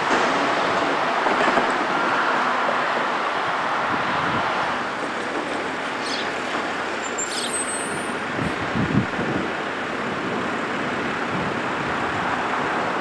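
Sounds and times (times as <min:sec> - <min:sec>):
road traffic rushing: 0:00.0 - 0:13.0
faint high chirps: 0:06.0 - 0:06.4, 0:07.0 - 0:08.2.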